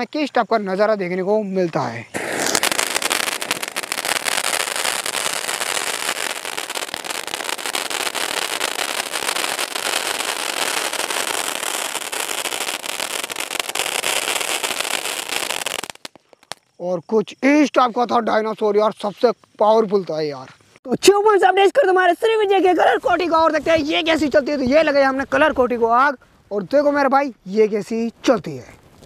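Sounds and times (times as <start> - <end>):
firework fountain hissing and crackling: 1.9 - 16.6.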